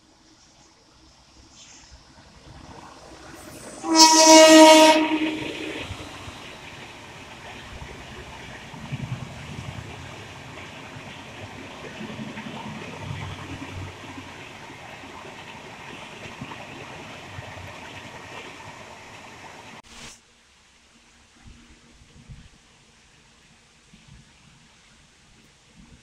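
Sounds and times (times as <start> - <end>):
passing train rumble: 0.1 - 19.8
rain rushing: 1.5 - 20.2.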